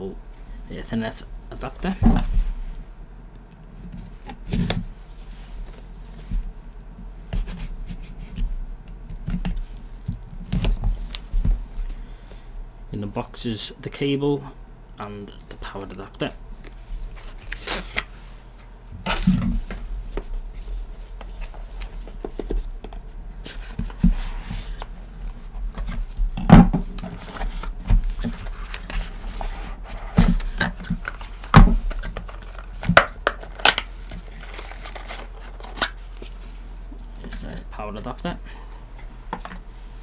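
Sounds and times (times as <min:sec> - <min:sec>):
cardboard box being unpacked: 0:27.0 - 0:36.4.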